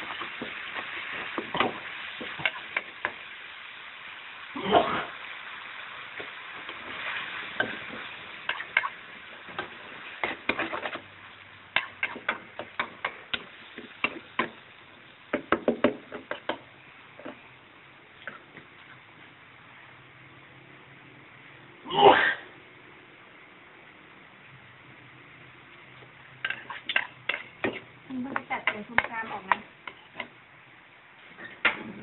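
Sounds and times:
stir-fry sizzling in a wok: 0.0 - 32.0
metal spoon tapping a wok: 11.7 - 14.6, 15.3 - 17.4, 26.4 - 30.4
spatula scraping a pan: 26.4 - 30.4.

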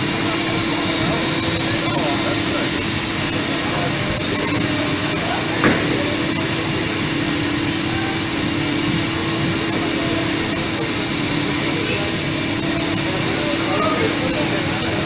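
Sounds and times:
blower drone: 0.0 - 15.0
cutting machine hum: 0.0 - 15.0
sharp knock: 5.6 - 6.2.

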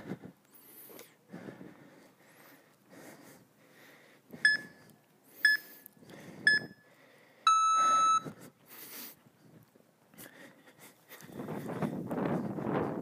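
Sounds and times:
long low timer beep: 4.4 - 4.8, 5.4 - 5.7, 6.5 - 6.8, 7.5 - 8.3
short timer beeps: 4.5 - 4.8, 5.4 - 5.7, 6.5 - 6.8, 7.5 - 8.3.

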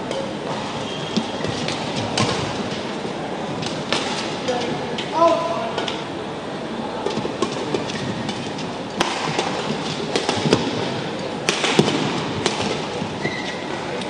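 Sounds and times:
indoor arena noise: 0.0 - 14.0
racket hitting shuttlecock: 0.1 - 2.8, 3.6 - 4.3, 7.0 - 13.6
shoe squeak: 0.7 - 1.6, 13.2 - 13.8.

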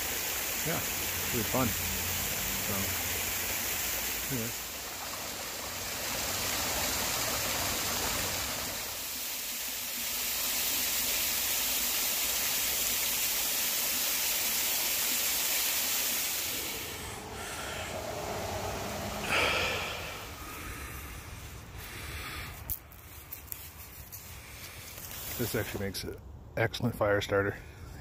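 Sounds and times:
water rushing over rocks: 0.0 - 20.4
rustling and scuffing: 22.5 - 25.8.

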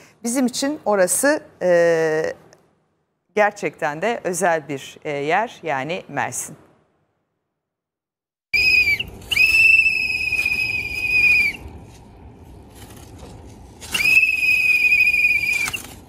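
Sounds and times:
low background noise: 0.0 - 7.3, 8.6 - 16.0
high-pitched whistle blasts: 8.6 - 11.7, 13.9 - 15.9.

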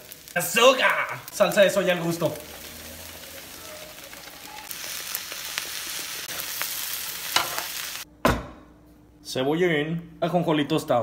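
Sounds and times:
rice sizzling in a frying pan: 0.0 - 8.1.

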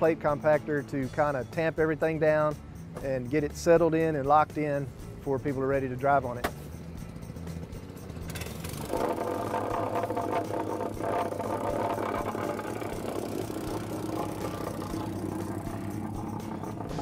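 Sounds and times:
plate compactor running: 7.1 - 17.0.

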